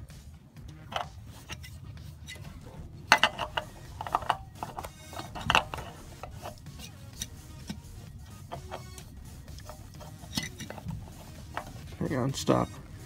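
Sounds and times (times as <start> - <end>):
metal oil filter scraping: 0.6 - 13.0
sharp clicks and knocks: 0.7 - 2.5, 3.1 - 12.0.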